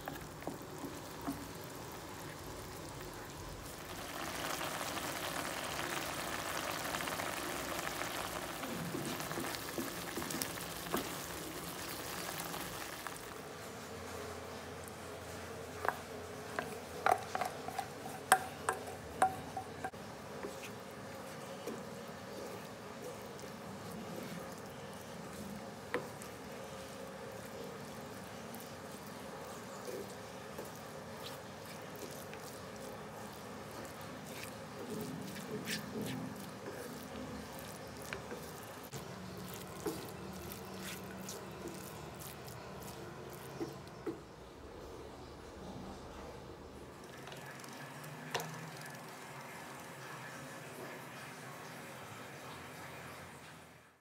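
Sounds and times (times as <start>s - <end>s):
spatula tapping steel vessel: 17.0s - 20.0s.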